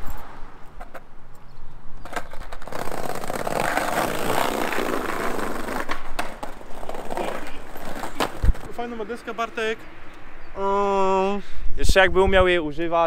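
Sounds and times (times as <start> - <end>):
skateboard wheels rolling on bricks: 1.9 - 9.1
skateboard clacks: 2.0 - 8.8.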